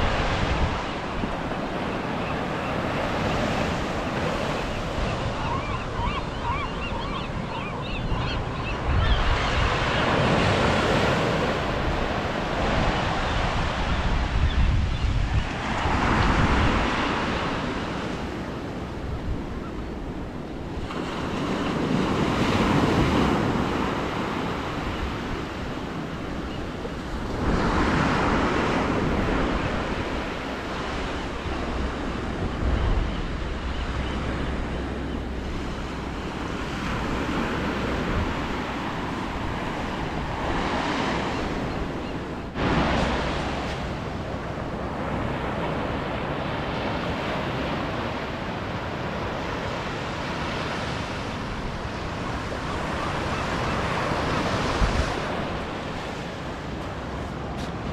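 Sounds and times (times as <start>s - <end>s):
small waves washing onto beach: 35.5s - 57.9s.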